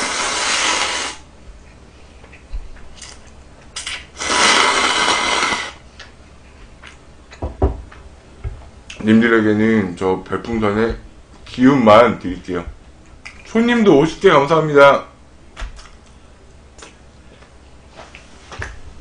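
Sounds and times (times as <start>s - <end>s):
person slurping noodles: 0.0s - 1.2s, 3.8s - 5.8s.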